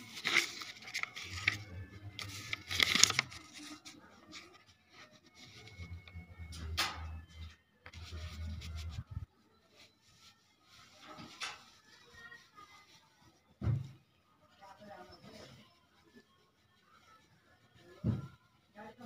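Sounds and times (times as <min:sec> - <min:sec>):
paper scratching and rustling: 0:00.0 - 0:06.2, 0:07.9 - 0:13.4.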